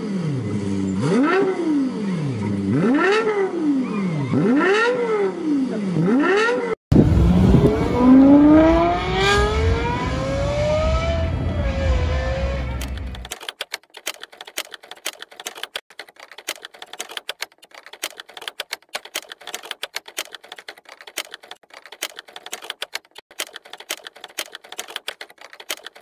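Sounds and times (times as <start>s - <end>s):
keyboard typing clicks: 12.8s - 26.0s.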